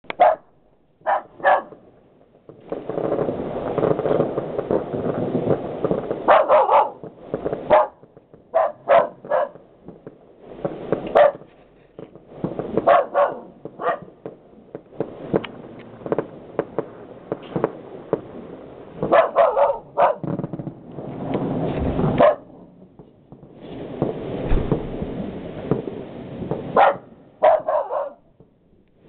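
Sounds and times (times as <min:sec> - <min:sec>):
dog barking: 0:00.1 - 0:01.8, 0:06.3 - 0:07.0, 0:07.7 - 0:09.6, 0:11.1 - 0:11.5, 0:12.8 - 0:14.1, 0:19.0 - 0:20.2, 0:22.2 - 0:22.5, 0:26.8 - 0:28.3
distant fireworks crackling: 0:00.1 - 0:29.0.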